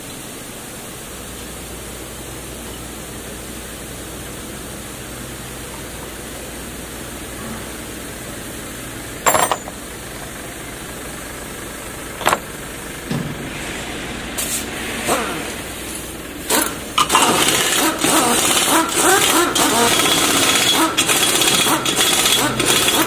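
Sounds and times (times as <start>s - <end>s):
impact wrench bursts: 16.5s - 23.0s.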